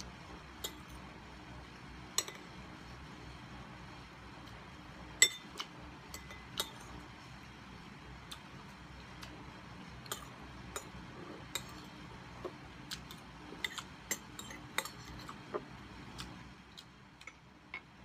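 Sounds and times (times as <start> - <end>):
metal spoon clinking on glass bowl: 5.2 - 5.5, 6.1 - 6.8.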